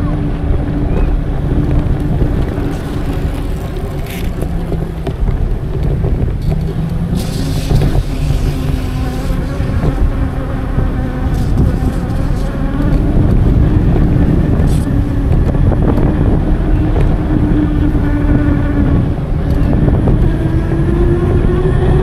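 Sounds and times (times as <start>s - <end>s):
tyre and road noise: 0.0s - 22.0s
wind rumble on microphone: 0.0s - 22.0s.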